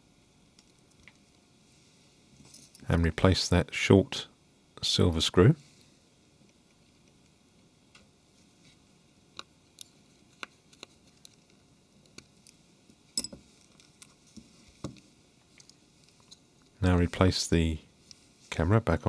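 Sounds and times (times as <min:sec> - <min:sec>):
small phone parts handled: 0:13.2 - 0:14.2.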